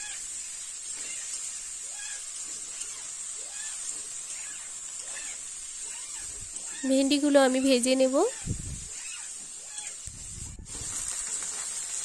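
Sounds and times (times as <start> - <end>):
vegetables sizzling in hot oil: 0.0 - 12.0.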